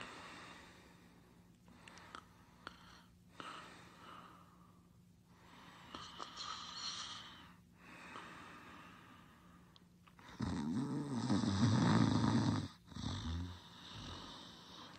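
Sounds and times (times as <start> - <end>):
faint steady hum: 0.0 - 14.9
person snoring softly: 5.8 - 8.3, 10.2 - 14.9.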